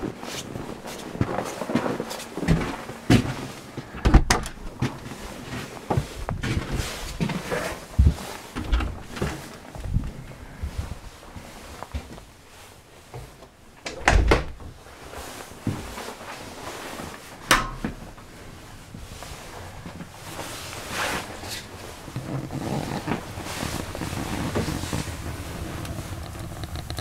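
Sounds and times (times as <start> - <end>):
low rustling rumble: 6.0 - 13.0, 17.8 - 27.0.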